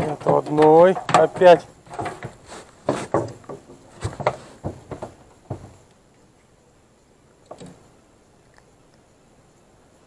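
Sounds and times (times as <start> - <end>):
soft knocks: 0.0 - 5.9
faint background noise: 0.0 - 10.0.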